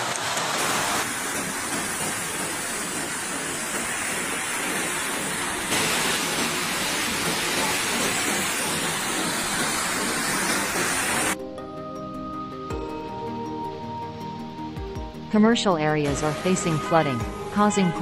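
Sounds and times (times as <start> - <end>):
floodwater rushing: 0.0 - 11.4.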